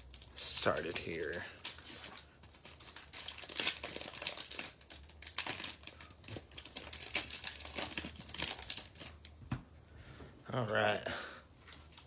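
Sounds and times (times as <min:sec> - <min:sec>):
foil wrapper crinkling and tearing: 0:00.0 - 0:09.3.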